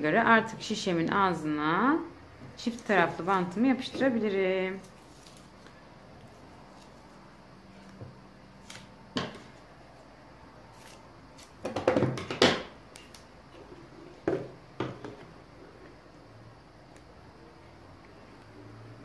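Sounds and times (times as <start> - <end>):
tape peeling off with crackling: 4.8 - 5.6, 8.6 - 9.0, 10.7 - 11.6.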